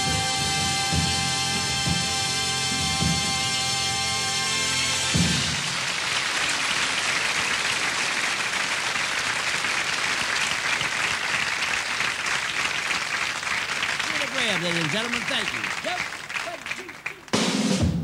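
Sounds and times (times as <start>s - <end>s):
audience applauding: 5.1s - 17.9s.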